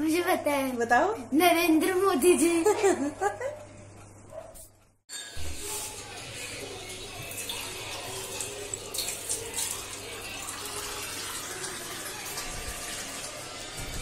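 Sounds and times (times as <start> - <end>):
tap water filling a cup: 5.4 - 14.0.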